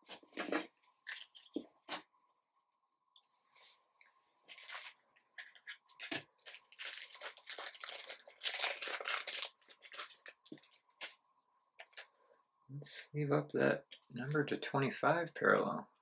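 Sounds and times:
plastic sleeves crinkling: 4.4s - 11.2s.

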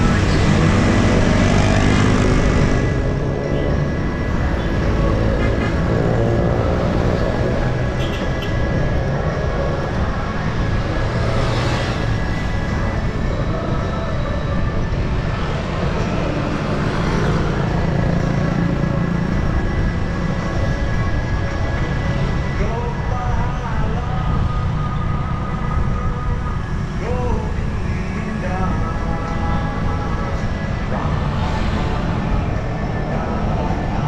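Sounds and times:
low traffic rumble: 0.0s - 34.0s
motor vehicle engines running: 0.0s - 34.0s.

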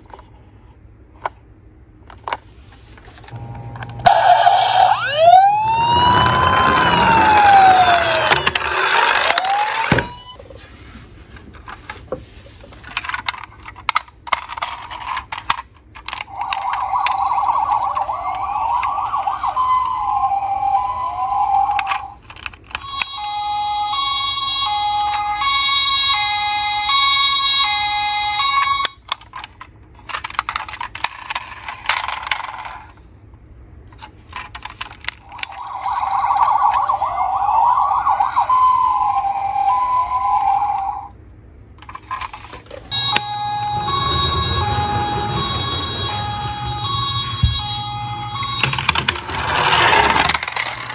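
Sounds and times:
rising and falling toy siren wail: 4.0s - 10.4s, 16.3s - 22.2s, 22.8s - 29.0s, 35.2s - 41.2s, 42.9s - 50.9s
two-tone hi-lo siren: 4.1s - 10.4s, 22.8s - 28.9s, 35.6s - 41.1s, 42.9s - 49.6s.

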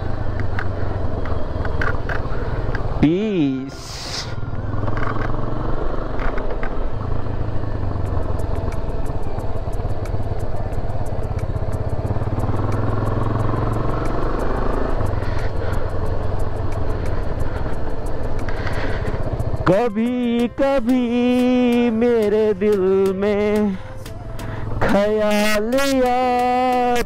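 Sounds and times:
motorcycle engine running: 0.0s - 27.0s
road and wind noise: 0.0s - 27.0s
fast regular ticking: 4.9s - 23.8s.

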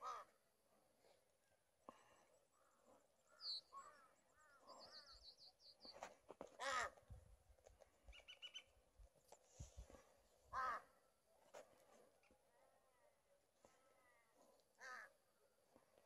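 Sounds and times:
crow cawing: 0.0s - 0.4s, 6.6s - 7.0s, 10.5s - 10.9s, 14.8s - 15.1s
small birds chirping: 2.2s - 6.2s, 7.9s - 9.0s.

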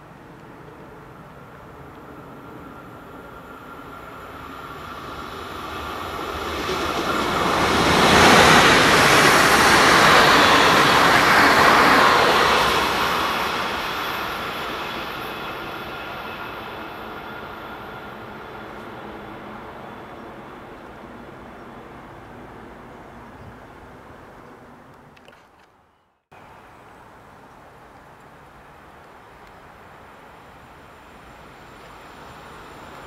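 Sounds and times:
train passing at speed: 0.0s - 24.9s, 26.4s - 33.0s.

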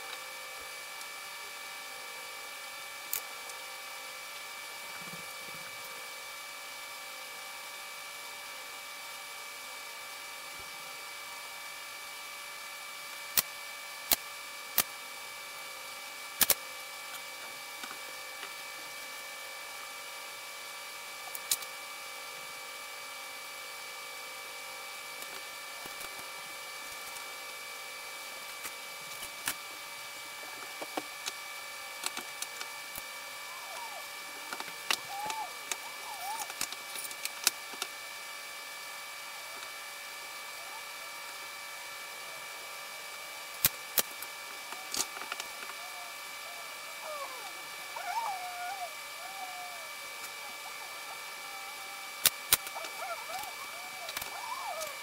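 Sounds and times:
steady tonal hum: 39.2s - 55.0s.

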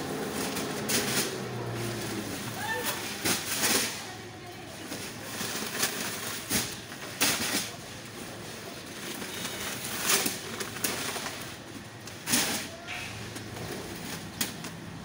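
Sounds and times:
sacks scraping and rustling: 4.9s - 14.9s.

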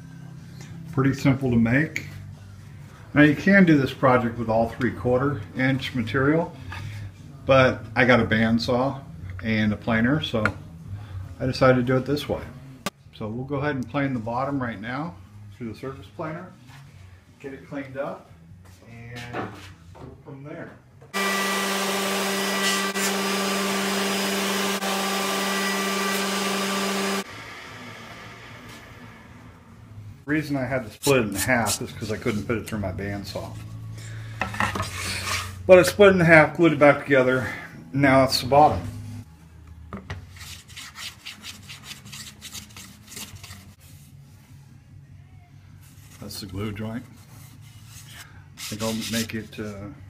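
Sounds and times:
thickness planer droning: 21.2s - 29.8s.

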